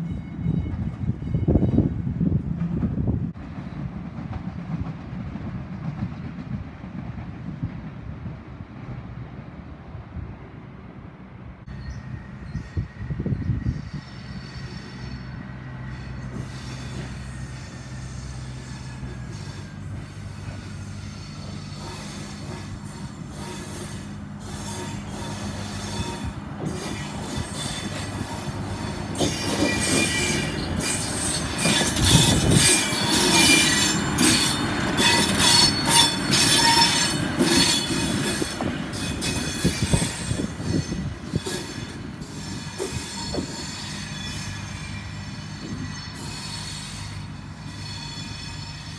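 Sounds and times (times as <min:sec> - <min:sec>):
diesel railcar engine droning: 0:00.0 - 0:48.9
wheels squealing on rails: 0:11.6 - 0:48.9.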